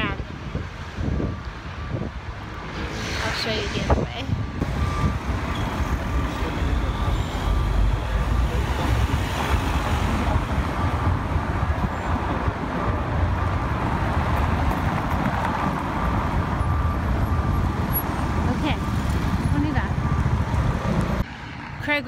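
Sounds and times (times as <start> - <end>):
wind rumbling on microphone: 0.0 - 6.2
city street traffic: 0.0 - 22.0.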